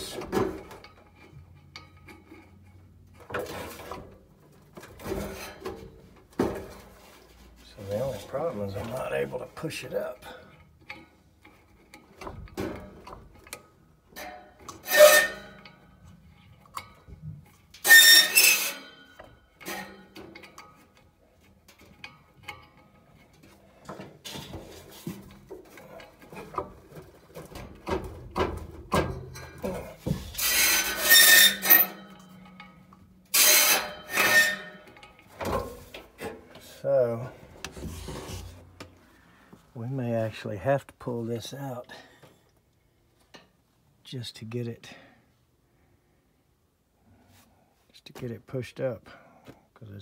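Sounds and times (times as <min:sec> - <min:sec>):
metal blower wheel scraping: 0:14.2 - 0:15.8, 0:17.8 - 0:20.2, 0:29.2 - 0:36.0
loud ringing metal scrapes: 0:14.2 - 0:15.9, 0:17.8 - 0:20.1, 0:30.3 - 0:35.0.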